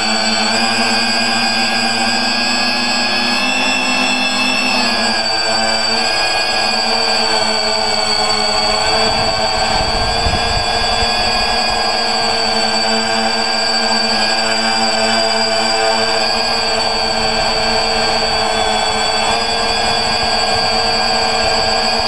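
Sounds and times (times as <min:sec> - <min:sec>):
drone propellers whining: 0:00.0 - 0:22.0
low rumble: 0:08.5 - 0:12.0.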